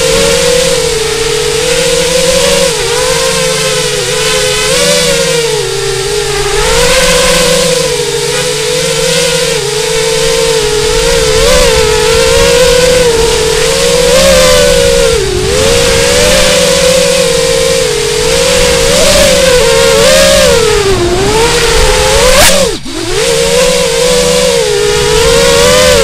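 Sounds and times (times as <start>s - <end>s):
drone motors whining: 0.0s - 26.0s
wind noise: 0.0s - 26.0s.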